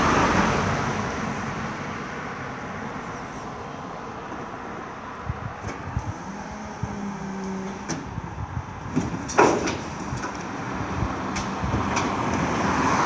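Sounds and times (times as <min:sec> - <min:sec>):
bin lorry engine hum: 0:00.0 - 0:13.0
passing car: 0:00.0 - 0:13.0.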